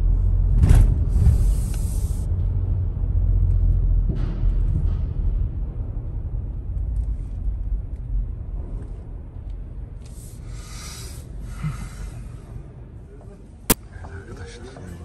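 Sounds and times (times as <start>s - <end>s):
car rumbling inside cabin: 0.0s - 10.3s.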